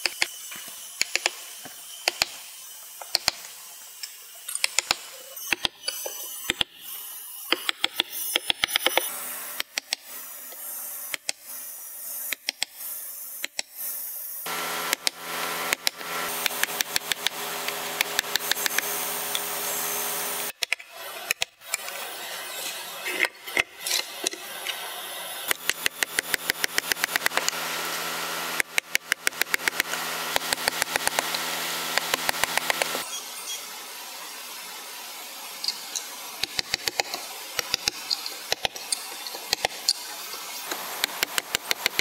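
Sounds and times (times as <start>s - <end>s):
hammer striking chisel: 1.0s - 1.4s, 2.0s - 2.4s, 4.5s - 6.7s, 7.5s - 10.0s, 14.8s - 19.5s, 25.5s - 33.2s, 36.4s - 40.1s, 40.7s - 42.0s.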